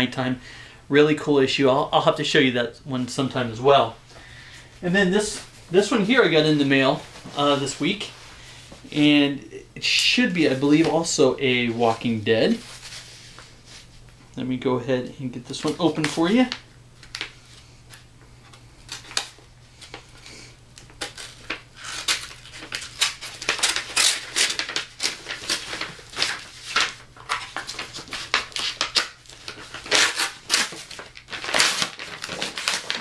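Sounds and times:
wrapping crinkling and scraping: 9.9 - 14.1, 15.5 - 33.0
packing tape tearing: 18.8 - 33.0.

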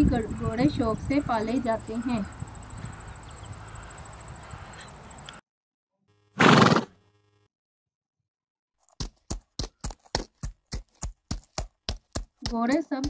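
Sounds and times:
horse hooves clip-clopping: 8.8 - 13.0.

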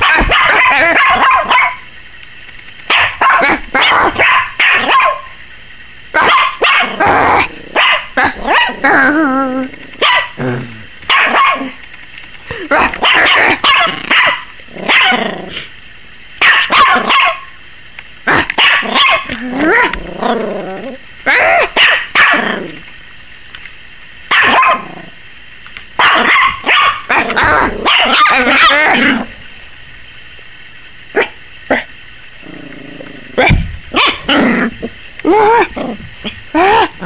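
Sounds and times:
puppy barking: 0.0 - 1.9, 2.9 - 5.4, 6.2 - 8.9, 10.0 - 10.4, 11.1 - 11.8, 12.7 - 15.2, 16.4 - 17.6, 18.3 - 20.0, 21.3 - 22.6, 24.3 - 25.0, 26.0 - 29.3, 31.2 - 31.9, 33.4 - 34.5.

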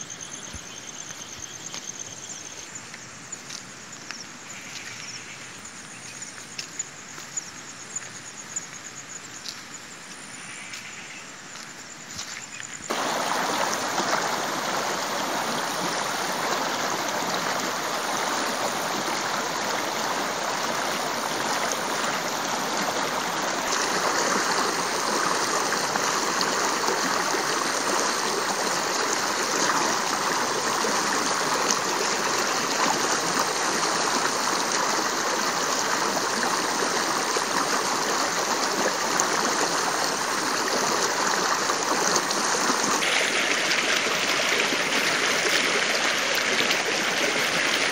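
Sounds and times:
stream flowing over rocks: 12.2 - 47.9.

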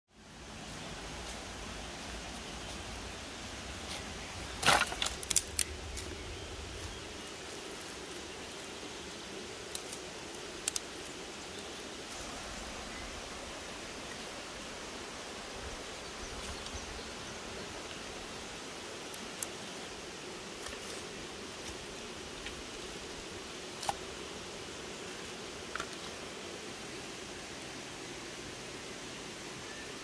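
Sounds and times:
steady background hiss: 0.1 - 30.0
dry sticks cracking and snapping: 3.9 - 6.2, 9.6 - 11.1, 23.8 - 24.0.

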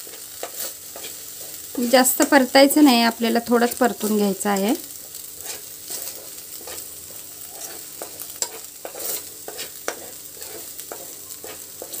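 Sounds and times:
spatula scraping and tapping pan: 0.0 - 4.3, 5.0 - 12.0
paste sizzling in fat: 0.0 - 12.0.

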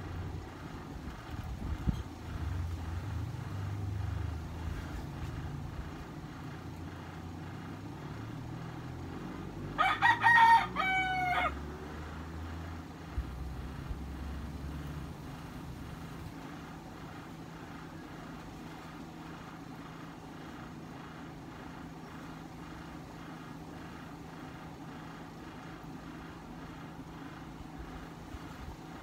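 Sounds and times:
low steady hum: 0.0 - 29.0
rooster crowing: 9.4 - 13.1.

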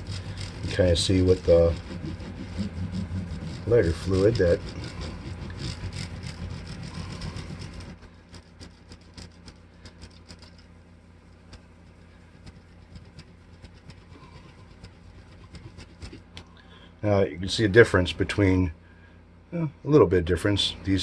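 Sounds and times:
rag scrubbing guitar fretboard: 0.0 - 10.6, 12.2 - 16.3.

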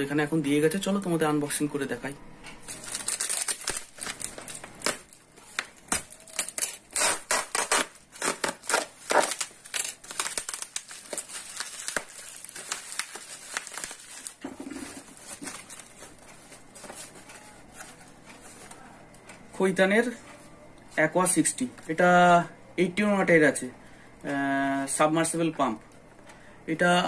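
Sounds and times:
bubble wrap crinkling: 2.6 - 18.8.

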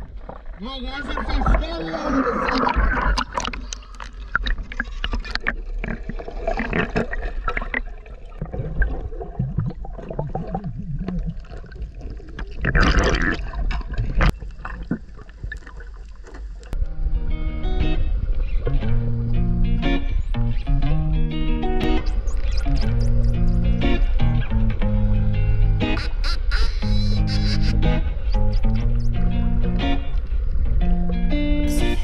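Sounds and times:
water sloshing and splashing: 0.0 - 16.8.

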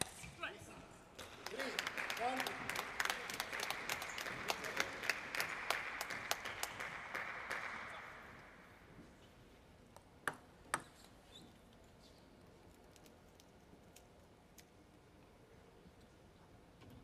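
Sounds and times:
audience applause: 1.2 - 8.6.

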